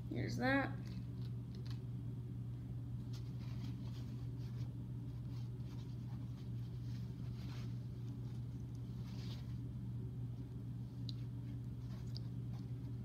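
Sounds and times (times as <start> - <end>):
steady low hum: 0.0 - 13.0
paper towels rustling: 3.0 - 9.9.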